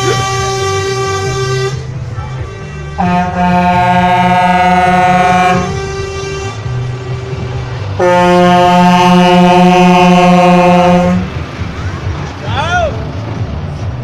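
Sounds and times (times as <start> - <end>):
truck air horn chord: 0.0 - 7.1, 8.0 - 11.3.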